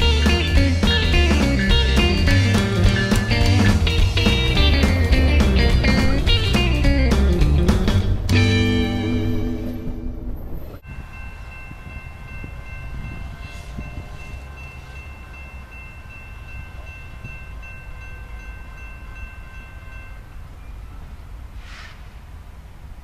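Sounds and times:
distant locomotive horn: 12.5 - 15.0.

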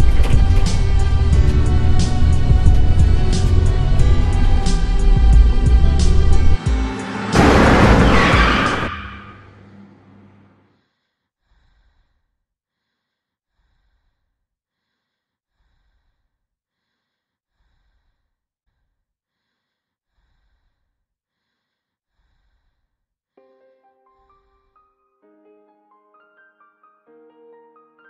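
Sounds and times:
faint slow breathing: 10.7 - 18.3, 19.3 - 22.9.

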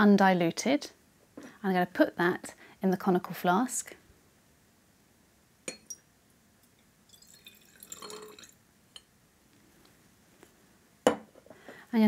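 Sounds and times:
glass clinks: 5.7 - 6.1
liquid splashing and trickling: 7.1 - 8.6.

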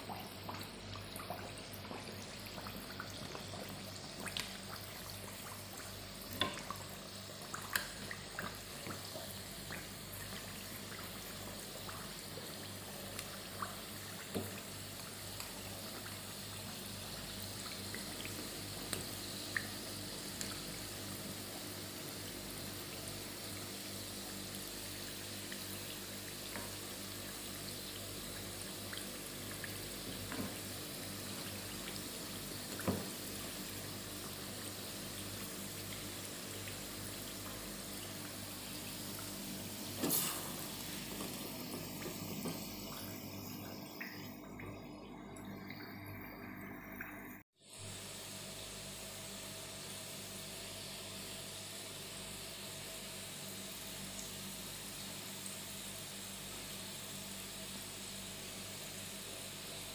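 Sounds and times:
oil sizzling and bubbling: 0.0 - 59.9.

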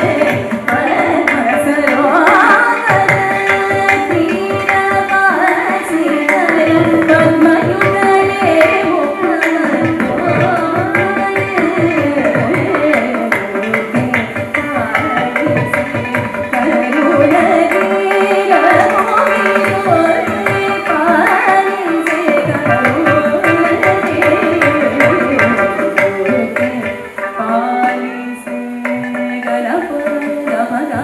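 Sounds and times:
violin: 0.0 - 31.0
woman singing: 0.0 - 31.0.

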